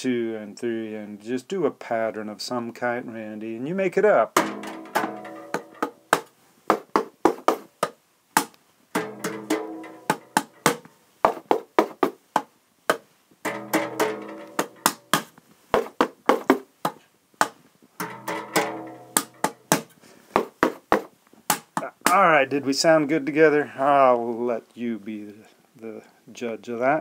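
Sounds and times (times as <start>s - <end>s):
sharp taps and knocks rhythm: 4.4s - 22.4s.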